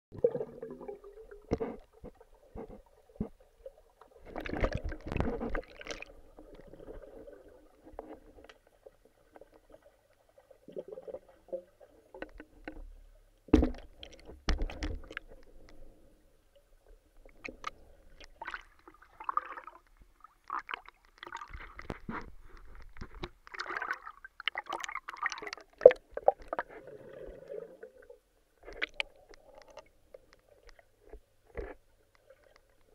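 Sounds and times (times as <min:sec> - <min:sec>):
underwater gurgling and bubbling: 0:00.1 - 0:08.4.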